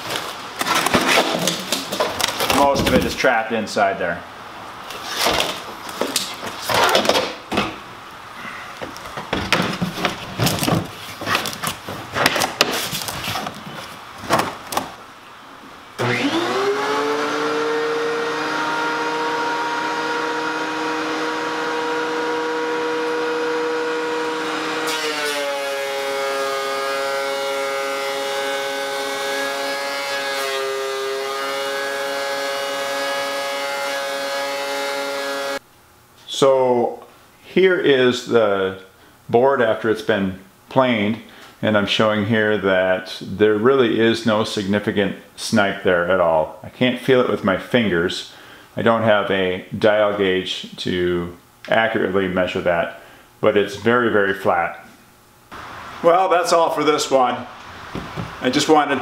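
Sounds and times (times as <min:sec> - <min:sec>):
shop vacuum running: 0:16.0 - 0:35.6, 0:55.5 - 0:59.0.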